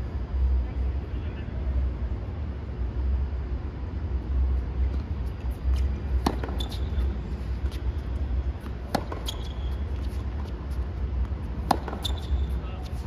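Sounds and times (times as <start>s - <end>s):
steady low rumble: 0.0s - 13.0s
tennis ball bouncing: 5.7s - 12.6s
racket striking tennis ball: 6.1s - 7.1s, 8.6s - 10.5s, 11.6s - 12.6s.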